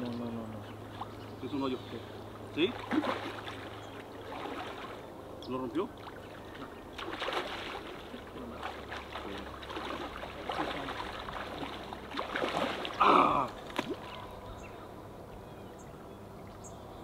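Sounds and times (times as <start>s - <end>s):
river water running: 0.0s - 17.0s
small water splashes: 0.8s - 1.2s, 2.3s - 14.4s.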